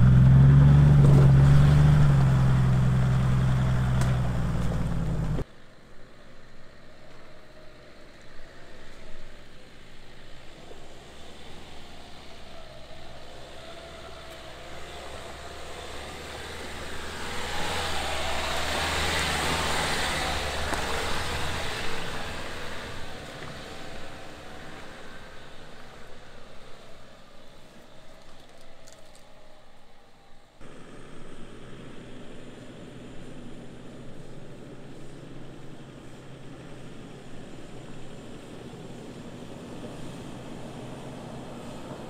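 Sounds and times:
tyre and scraping noise: 0.0s - 5.4s
diesel engine pulling uphill: 0.0s - 5.5s, 6.3s - 42.0s.

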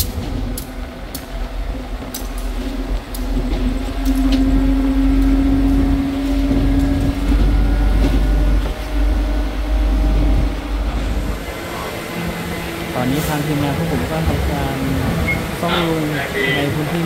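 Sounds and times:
droning engine: 0.0s - 17.0s
rail vehicle rumbling on track: 0.0s - 17.0s.

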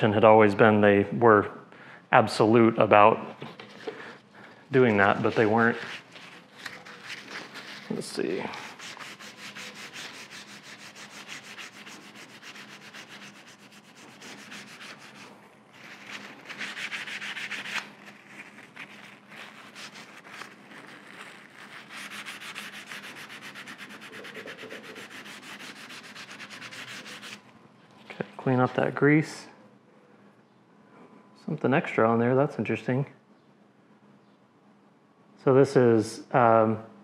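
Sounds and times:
rag scrubbing metal: 4.8s - 27.4s.

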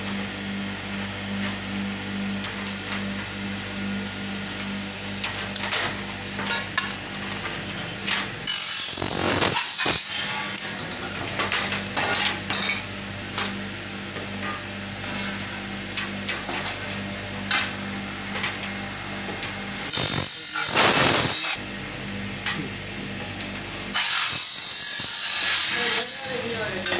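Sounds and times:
high-pitched metal cutting machine: 8.4s - 10.8s, 19.8s - 21.6s, 23.9s - 26.9s.

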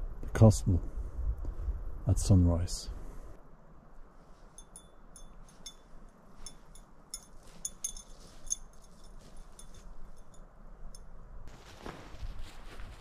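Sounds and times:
small metal objects clinking: 6.4s - 10.4s.

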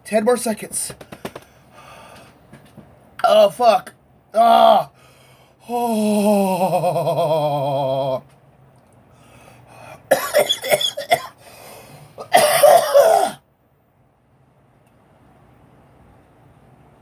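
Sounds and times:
man moaning in pain: 4.3s - 5.0s, 5.6s - 8.3s
man coughing harshly: 10.1s - 11.4s, 12.2s - 13.4s.

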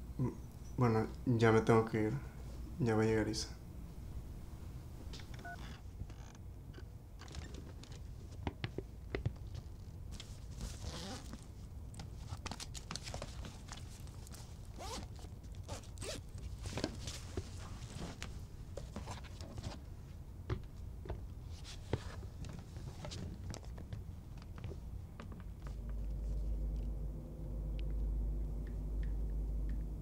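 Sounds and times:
zipper pulls: 10.7s - 11.4s, 14.7s - 16.3s
bag fabric rustling: 12.3s - 18.2s.

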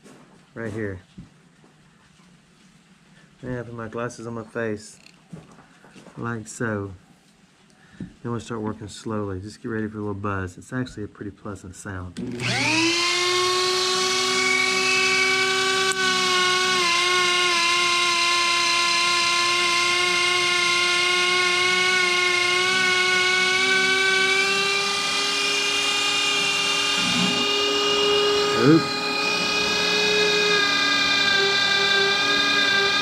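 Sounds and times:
rotary tool high-pitched whine: 12.2s - 33.0s.

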